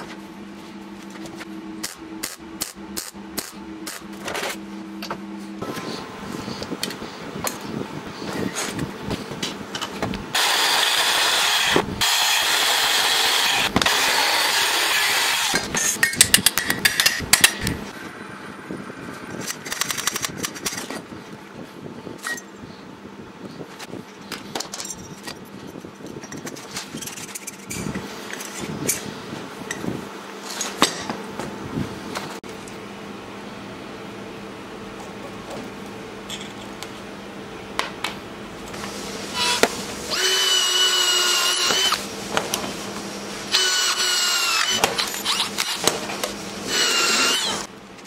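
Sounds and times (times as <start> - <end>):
power tool grinding metal: 10.4 - 15.7, 39.3 - 42.0, 43.5 - 45.9, 46.6 - 47.7.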